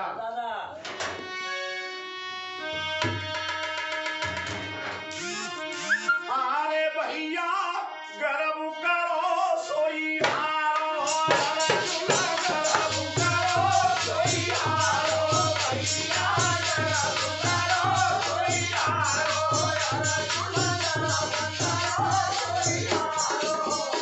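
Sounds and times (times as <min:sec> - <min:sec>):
sustained harmonium: 0:00.8 - 0:24.0
man singing: 0:06.2 - 0:24.0
hand drum fast beat: 0:11.1 - 0:24.0.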